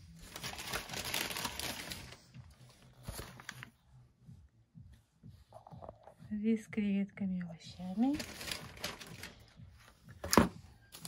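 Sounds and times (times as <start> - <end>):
plastic film crinkling: 0.0 - 3.7, 7.9 - 9.6.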